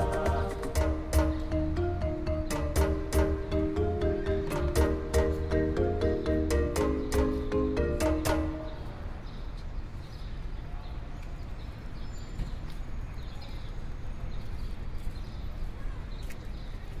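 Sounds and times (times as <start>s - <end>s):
plucked background music: 0.0s - 8.8s.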